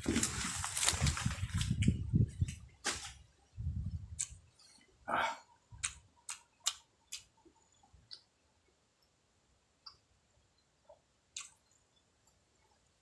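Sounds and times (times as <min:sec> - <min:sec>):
mouth clicks and lip smacks: 0:04.1 - 0:04.4, 0:05.8 - 0:07.4, 0:08.0 - 0:08.3, 0:10.9 - 0:11.7.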